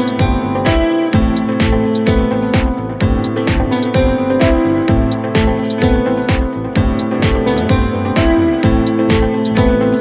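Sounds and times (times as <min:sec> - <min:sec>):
kick drum beat: 0:00.0 - 0:10.0.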